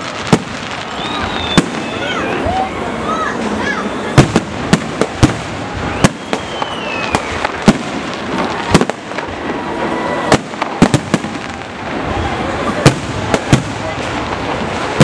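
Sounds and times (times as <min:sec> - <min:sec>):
crackling hiss: 0:00.0 - 0:15.0
faint falling whistle: 0:00.8 - 0:02.3, 0:05.8 - 0:07.6.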